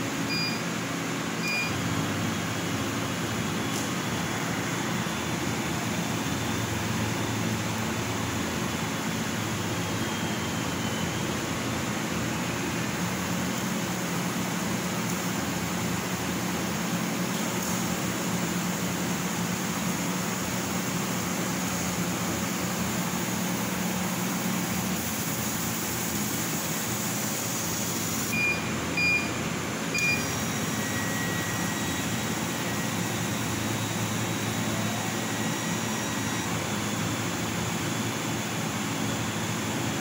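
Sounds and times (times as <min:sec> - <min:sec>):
laser cutter fan hum: 0:00.0 - 0:40.0
short high beeps: 0:00.3 - 0:00.6, 0:01.4 - 0:01.8, 0:28.3 - 0:29.4, 0:30.0 - 0:33.0.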